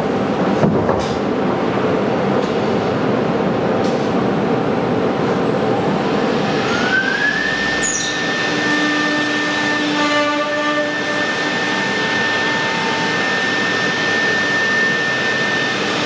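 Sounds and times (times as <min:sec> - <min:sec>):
machine whine: 0:01.5 - 0:16.0
router machine running: 0:06.3 - 0:16.0.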